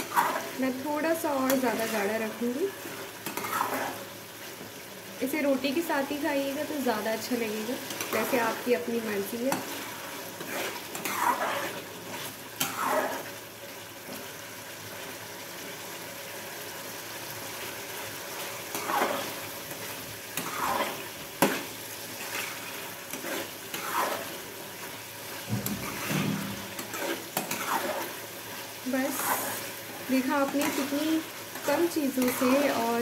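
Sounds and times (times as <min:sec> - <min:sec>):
metal spatula scraping pan: 0:00.0 - 0:00.7, 0:03.2 - 0:04.0, 0:07.8 - 0:13.3, 0:18.6 - 0:25.0, 0:25.6 - 0:28.3, 0:28.9 - 0:33.0
curry sizzling in a pan: 0:00.0 - 0:33.0.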